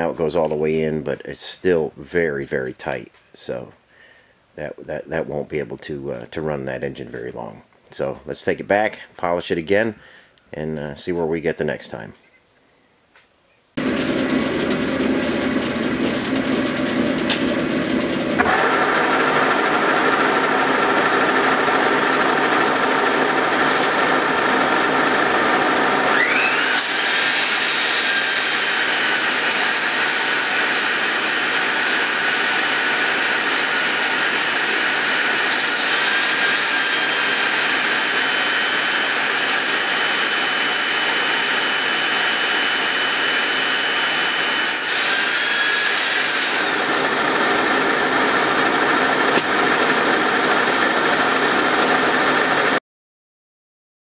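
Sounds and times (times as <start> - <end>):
metal lathe turning: 13.8 - 52.4
belt polisher whine: 13.8 - 52.8.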